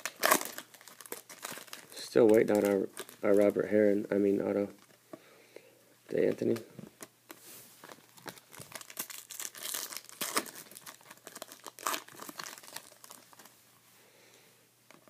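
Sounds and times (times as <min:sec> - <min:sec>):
foil wrapper crinkling and tearing: 0:00.0 - 0:03.6, 0:07.8 - 0:13.5.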